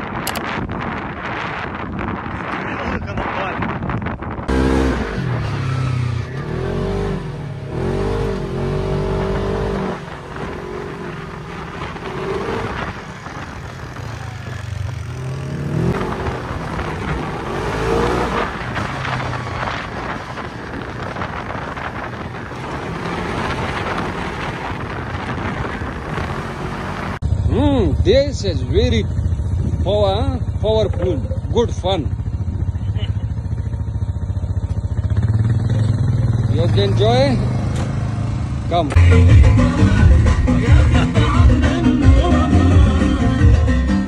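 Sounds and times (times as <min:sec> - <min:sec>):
dune buggy engine revving: 0:00.0 - 0:44.0.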